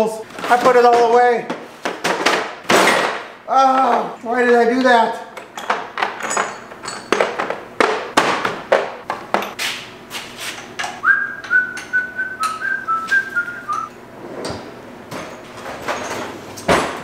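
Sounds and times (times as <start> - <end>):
metal tools clattering: 4.9 - 7.5, 15.2 - 16.4
man whistling: 11.0 - 13.9.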